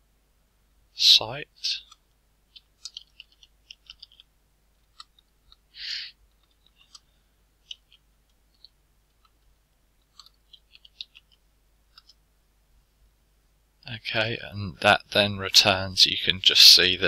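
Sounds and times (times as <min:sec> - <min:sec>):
keyboard typing: 0:01.9 - 0:05.6, 0:10.0 - 0:12.2.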